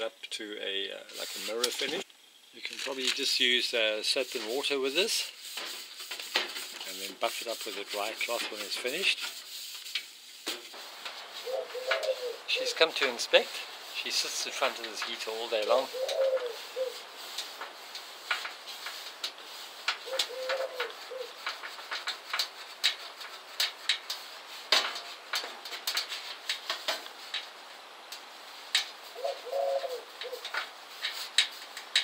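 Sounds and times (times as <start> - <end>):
low cooing calls: 11.4 - 12.8, 15.8 - 17.0, 20.0 - 21.4, 29.1 - 30.5.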